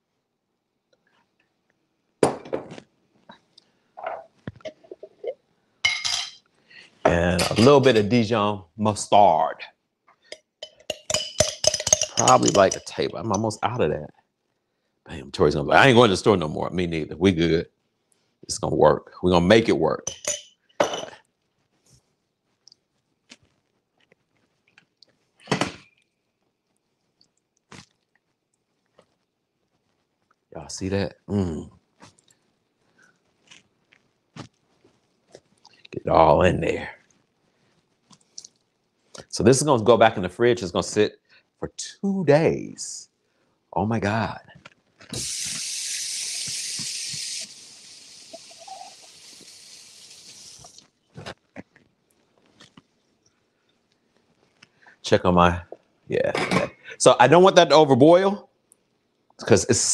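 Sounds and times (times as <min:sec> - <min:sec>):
faucet running into sink: 0:45.2 - 0:50.8.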